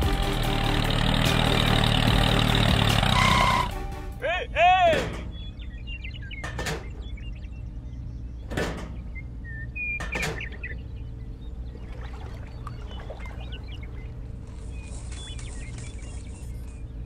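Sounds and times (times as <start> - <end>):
low background rumble: 0.0 - 17.0
small birds chirping: 4.2 - 17.0.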